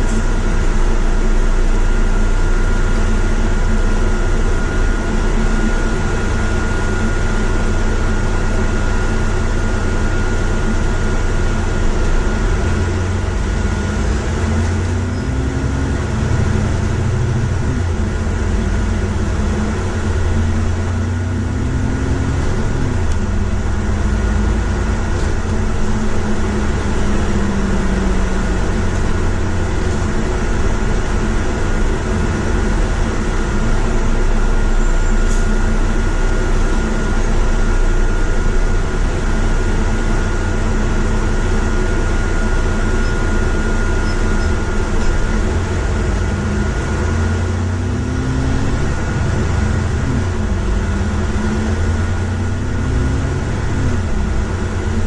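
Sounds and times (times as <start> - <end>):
bus accelerating: 0.0 - 55.0
bus engine running: 0.0 - 55.0
road noise: 0.0 - 55.0.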